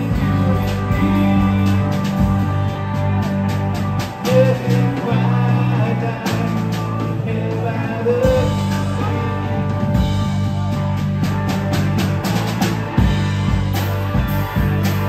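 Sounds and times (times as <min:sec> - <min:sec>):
electric bass notes: 0:00.0 - 0:15.0
electric guitars: 0:00.0 - 0:15.0
drum kit hits: 0:08.3 - 0:15.0.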